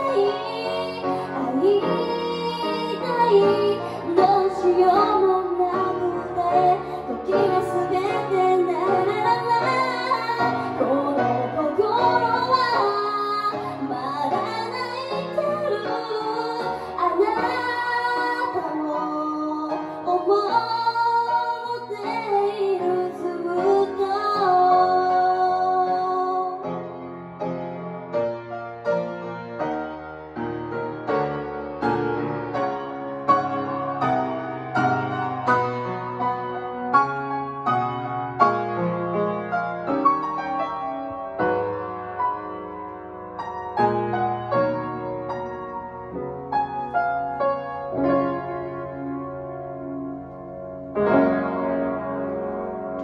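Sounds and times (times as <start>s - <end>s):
woman singing a ballad: 0.0s - 26.7s
grand piano: 0.0s - 53.0s.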